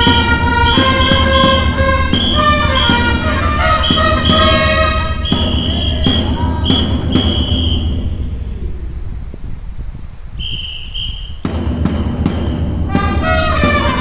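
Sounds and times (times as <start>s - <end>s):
trumpets playing: 0.0s - 8.2s, 12.8s - 14.0s
drum beats: 0.0s - 9.6s, 10.9s - 14.0s.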